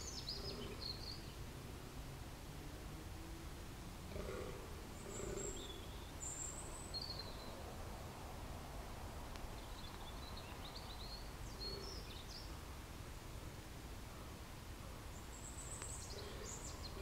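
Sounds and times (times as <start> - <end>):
small birds chirping: 0.0 - 1.4, 4.2 - 7.8, 9.3 - 13.3, 14.2 - 17.0.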